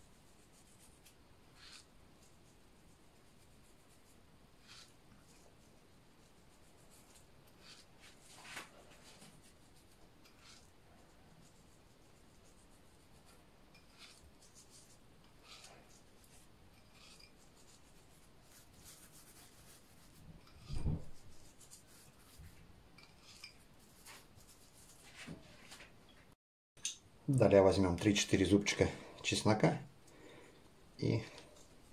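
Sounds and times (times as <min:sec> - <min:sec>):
gritty rubbing on fish: 0:00.2 - 0:25.4.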